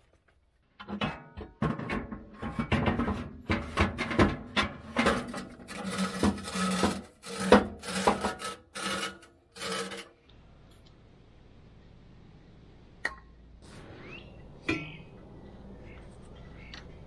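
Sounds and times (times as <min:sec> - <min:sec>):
power saw cutting metal pipe: 0:05.0 - 0:10.1.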